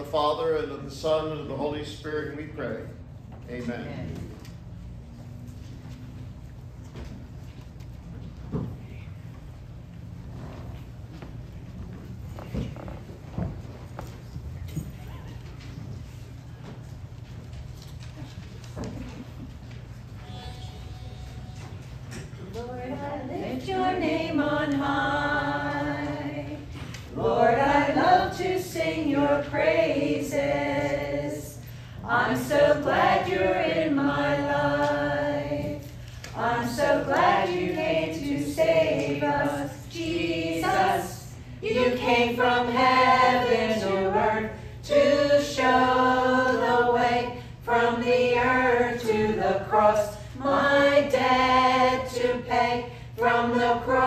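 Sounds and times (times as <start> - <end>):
steady low hum: 0.0 - 54.0
congregation singing a hymn: 20.2 - 54.0.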